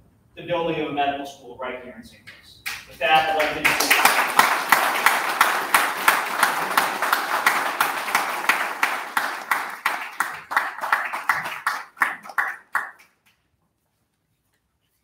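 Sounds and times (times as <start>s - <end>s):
audience applause: 3.0s - 13.1s.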